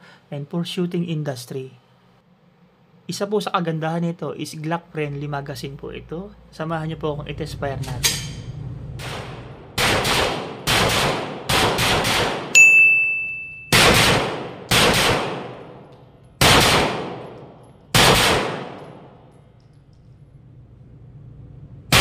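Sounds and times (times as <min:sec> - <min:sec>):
gunshots echoing indoors: 0:09.0 - 0:12.6, 0:13.7 - 0:19.8
high steady ring: 0:12.6 - 0:13.8.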